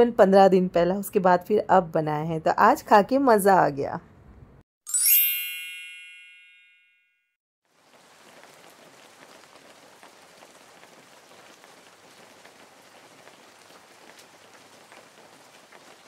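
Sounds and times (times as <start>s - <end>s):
rain falling: 7.7s - 16.0s.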